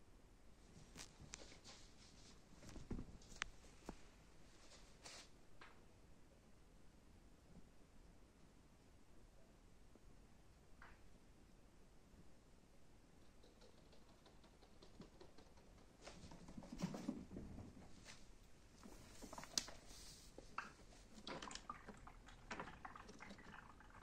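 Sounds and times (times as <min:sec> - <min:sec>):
rat rummaging in food pellets: 0:18.8 - 0:23.4.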